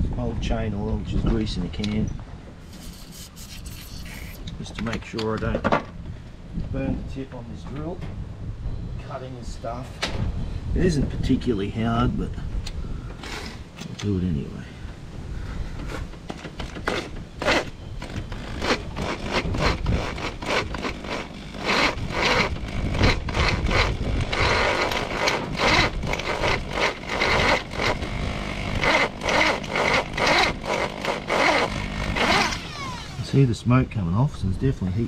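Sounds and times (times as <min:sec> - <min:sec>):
drill bursts cutting metal: 0:16.8 - 0:33.4.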